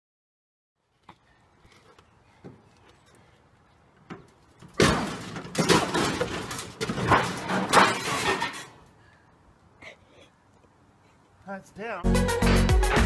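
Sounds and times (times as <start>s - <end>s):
metal grill crashing down steps: 4.8s - 8.8s.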